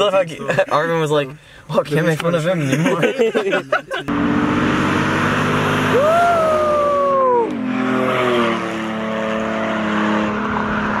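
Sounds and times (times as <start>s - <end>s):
car engine running hard: 4.1s - 11.0s.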